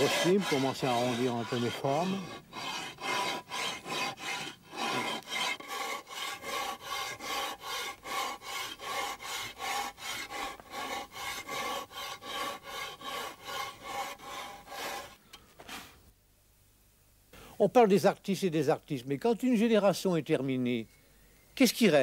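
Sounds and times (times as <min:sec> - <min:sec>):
rasp filing: 0:00.0 - 0:16.0.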